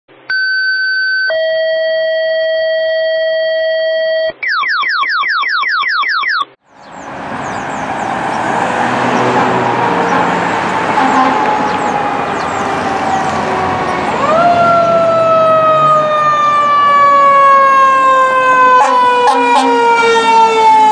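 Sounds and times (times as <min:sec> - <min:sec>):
road traffic noise: 0:06.6 - 0:20.9
distant fire engine siren wailing: 0:06.8 - 0:20.9.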